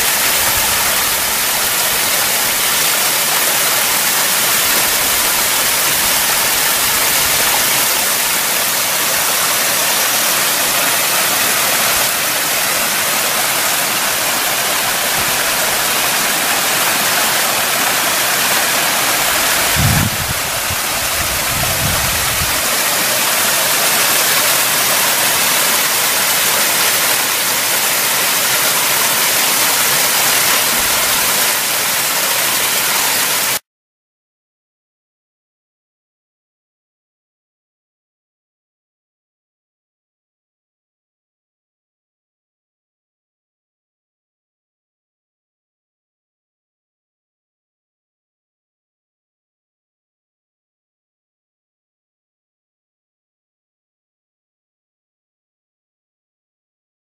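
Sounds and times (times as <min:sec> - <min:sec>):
stream rushing over rocks: 0:00.0 - 0:33.6.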